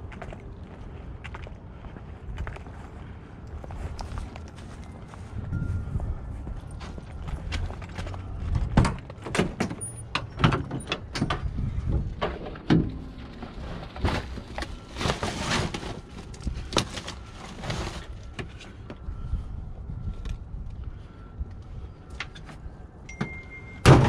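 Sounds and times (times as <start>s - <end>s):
van cargo door clanking: 23.8s - 24.0s.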